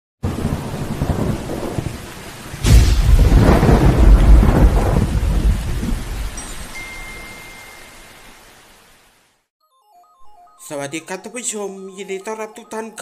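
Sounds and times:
sharp thunderclap: 0.2 - 2.0, 2.6 - 6.4
thunder rumbling: 0.2 - 6.4
rain hiss: 0.3 - 9.5.

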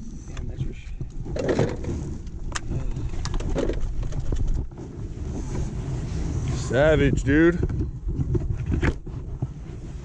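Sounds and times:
wind and water rumble: 0.0 - 10.0
fishing gear clicks and knocks: 0.4 - 4.8.

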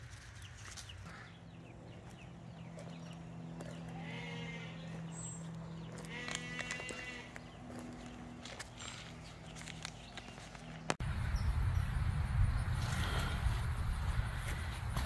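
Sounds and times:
faint livestock bleating: 3.9 - 5.1, 6.0 - 7.4.

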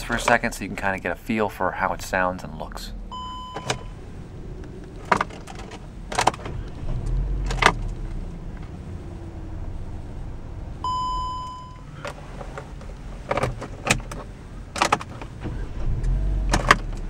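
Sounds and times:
car engine idling: 0.0 - 17.0
clicks and knocks in cabin: 5.0 - 8.0, 12.0 - 15.6, 16.5 - 17.0.

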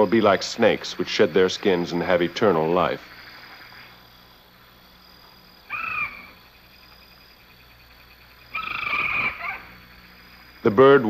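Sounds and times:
faint low hum: 0.0 - 11.0
high animal call: 5.6 - 6.5, 8.4 - 10.6.

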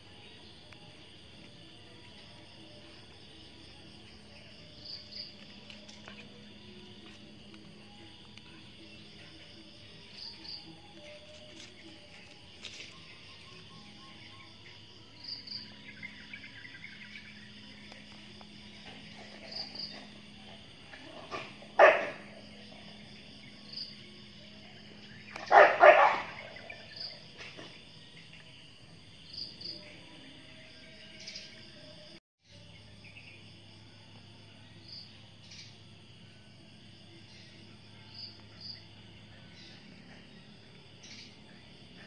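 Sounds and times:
insects chirping: 0.0 - 42.0
steady low hum: 0.0 - 42.0.

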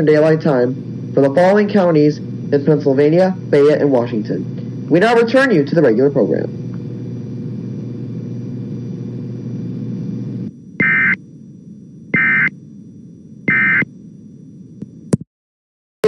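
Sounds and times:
radio hum and hiss: 0.0 - 15.2
warbling data bursts: 10.8 - 11.2, 12.1 - 12.5, 13.5 - 13.9.

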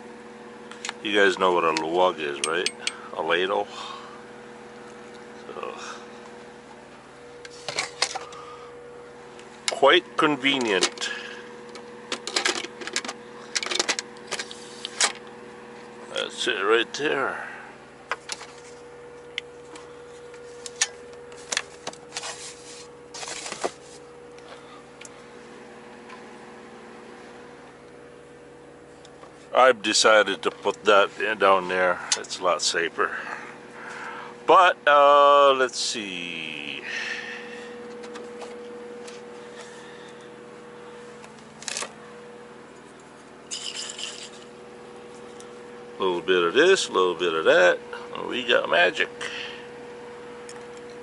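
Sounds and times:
steady hum: 0.0 - 51.0
glass bottle rattle: 43.5 - 44.4.

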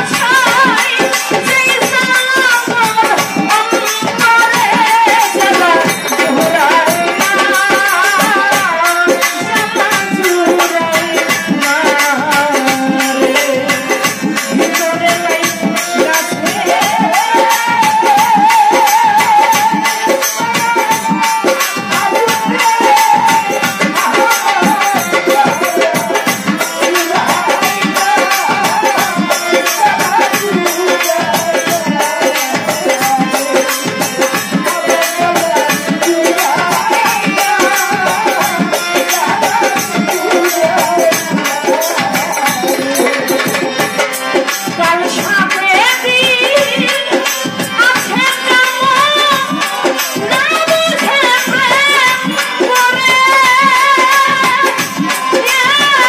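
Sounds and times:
hand drum beat: 0.0 - 56.0
woman singing: 0.0 - 56.0
rattling jingle percussion: 0.1 - 45.2.

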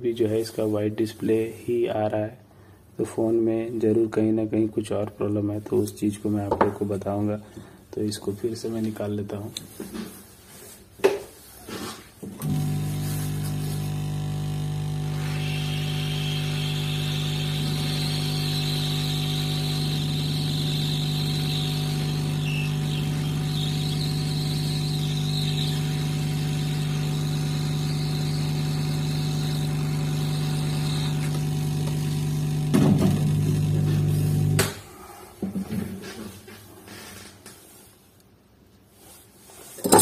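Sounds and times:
electrical hum of blower: 12.4 - 35.0.

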